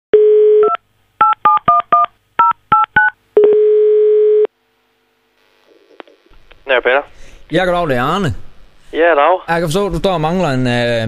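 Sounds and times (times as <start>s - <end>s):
telephone ringing tone: 3.4s - 4.5s.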